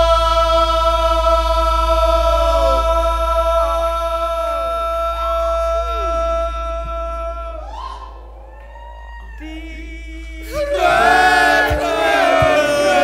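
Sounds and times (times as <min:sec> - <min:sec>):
several voices singing together: 0:00.0 - 0:06.3, 0:09.4 - 0:13.0
man singing long notes: 0:00.0 - 0:08.3, 0:09.4 - 0:13.0.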